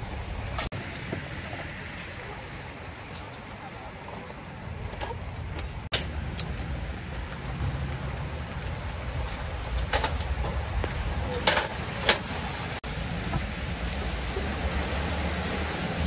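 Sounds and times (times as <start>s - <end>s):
metal parts clattering: 11.4s - 12.3s.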